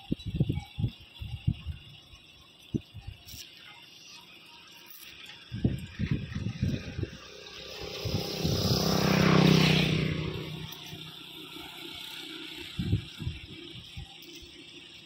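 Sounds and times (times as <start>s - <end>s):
vehicle engine passing by: 6.2s - 13.0s.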